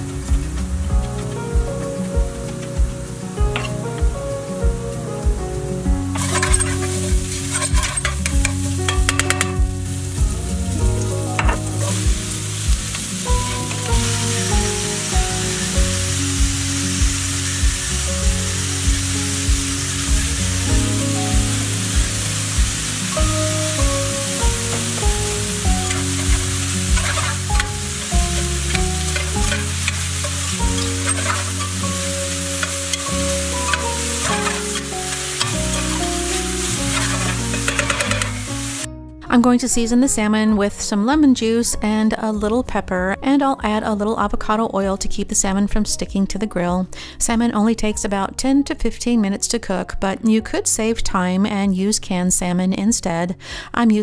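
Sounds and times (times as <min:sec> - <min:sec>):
onions sizzling in oil: 0:00.0 - 0:38.9
quiet background music with beat: 0:00.0 - 0:53.1
spatula scraping a pan: 0:06.2 - 0:09.6, 0:25.8 - 0:38.9.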